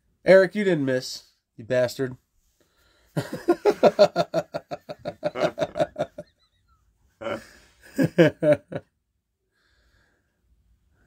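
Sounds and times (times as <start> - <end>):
man laughing: 3.2 - 8.9.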